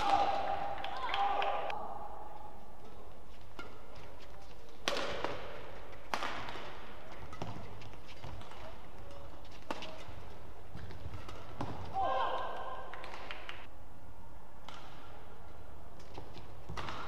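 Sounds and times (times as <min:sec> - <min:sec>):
rackets striking shuttlecock: 0:00.0 - 0:01.8, 0:02.4 - 0:13.7, 0:14.6 - 0:17.0.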